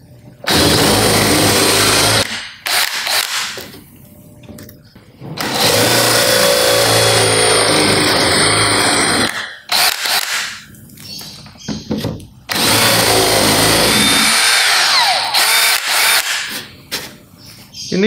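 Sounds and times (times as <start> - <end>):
cordless drill boring into plywood: 0.5 - 3.4, 5.4 - 10.4, 12.5 - 16.5
drill trigger bursts: 0.5 - 3.6, 5.4 - 10.6, 12.5 - 16.5.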